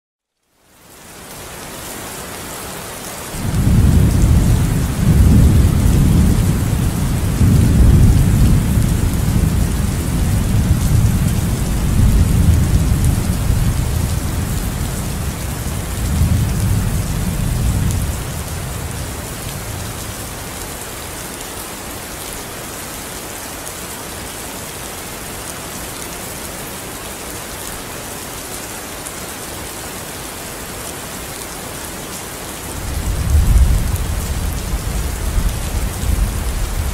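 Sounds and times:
steady rain: 0:00.3 - 0:36.9
thunder rumbling: 0:03.4 - 0:20.1, 0:32.8 - 0:36.9.

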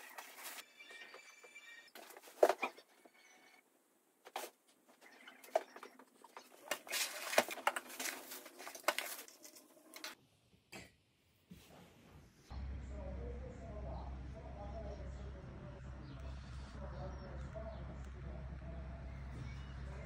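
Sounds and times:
plastic packaging rustling: 0:00.0 - 0:00.6, 0:05.5 - 0:10.2.

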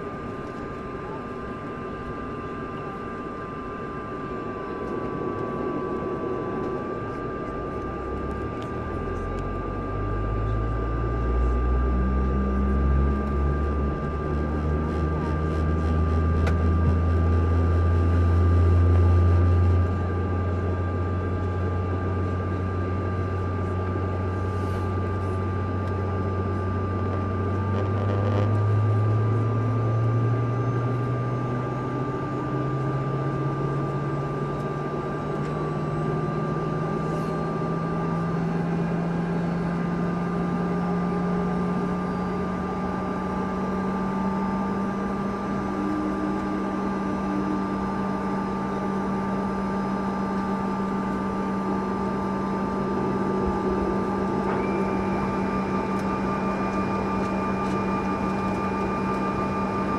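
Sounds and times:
steady high whine: 0:00.0 - 0:59.9
jet engine spooling up: 0:02.5 - 0:10.6, 0:35.2 - 0:59.9.

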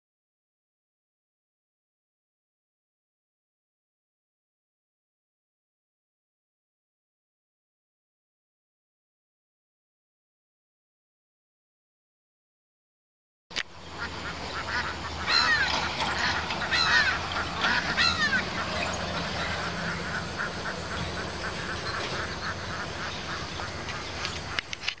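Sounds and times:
fainter repeated bird calls: 0:13.6 - 0:25.0
loud bird calls: 0:13.6 - 0:25.0.

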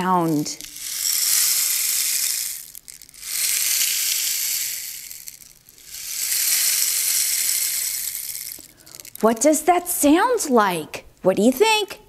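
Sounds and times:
rainstick pouring hiss: 0:00.3 - 0:09.3.

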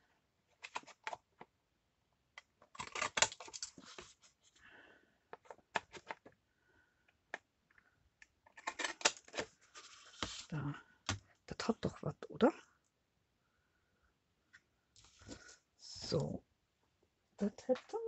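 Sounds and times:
paper rustling: 0:08.6 - 0:10.5.

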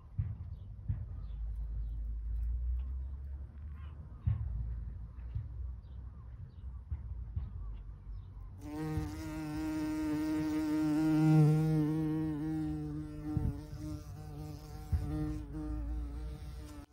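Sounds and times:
bumblebee buzzing: 0:08.6 - 0:16.9.

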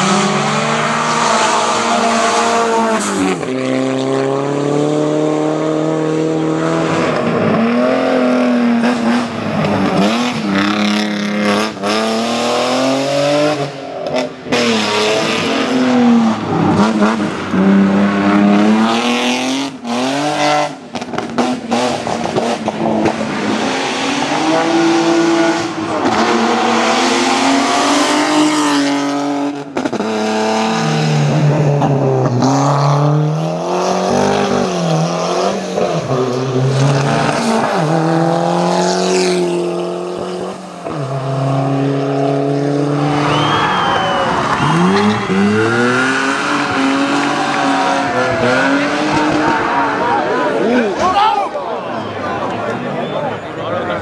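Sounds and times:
cars passing: 0:00.0 - 0:54.0
racing car engines revving: 0:00.0 - 0:54.0.

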